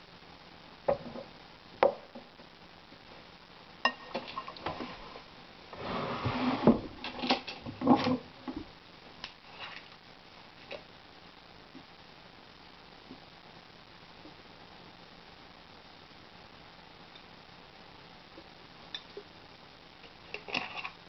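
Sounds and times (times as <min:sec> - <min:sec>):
spoon scraping and mixing vegetables: 0:09.5 - 0:09.9, 0:20.1 - 0:21.0.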